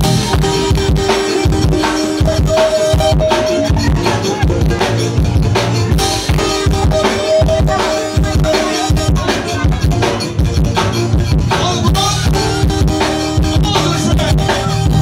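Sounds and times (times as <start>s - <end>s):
bass guitar: 0.0s - 15.0s
drum kit beat: 0.0s - 15.0s
sustained melody notes: 0.0s - 15.0s.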